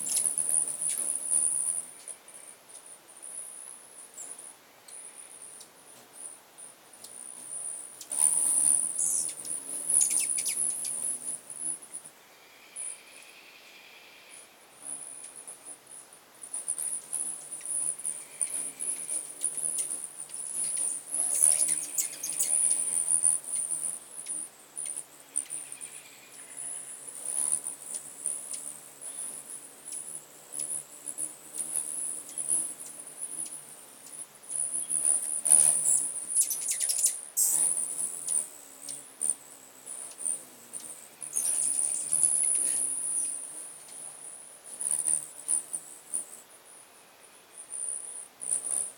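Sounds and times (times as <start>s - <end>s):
squeaky chittering birds: 0.0s - 2.1s, 7.0s - 11.8s, 16.6s - 44.2s
hummingbird wings humming: 0.0s - 48.9s
steady high buzzing: 6.9s - 13.2s, 14.7s - 48.9s.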